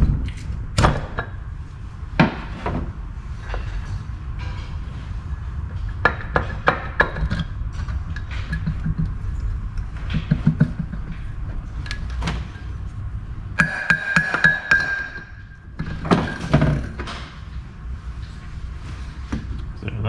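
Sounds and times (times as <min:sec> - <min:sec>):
metal clinks and knocks: 0:13.6 - 0:17.3.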